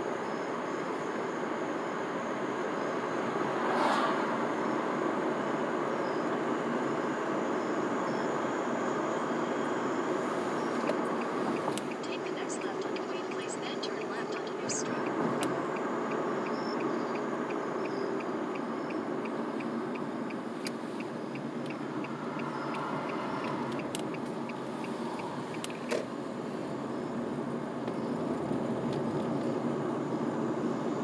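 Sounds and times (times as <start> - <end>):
car cabin driving noise: 0.0 - 31.0
turn signal ticking: 10.5 - 29.6
sharp clicks: 20.6 - 26.1.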